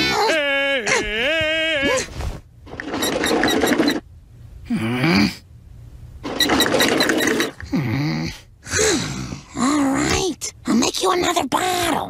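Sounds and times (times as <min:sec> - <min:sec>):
voice-like groan: 0:00.0 - 0:02.1, 0:04.6 - 0:05.4, 0:07.6 - 0:10.2.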